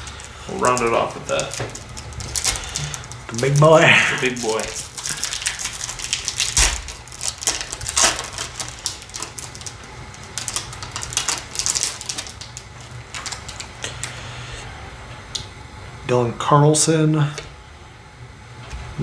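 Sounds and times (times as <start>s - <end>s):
foil wrapper tearing and crinkling: 0.0s - 14.2s.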